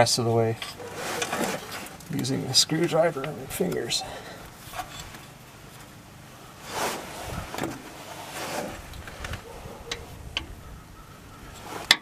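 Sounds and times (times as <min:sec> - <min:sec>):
foam bumper squeaking scrapes: 0:00.7 - 0:01.9, 0:06.6 - 0:08.9.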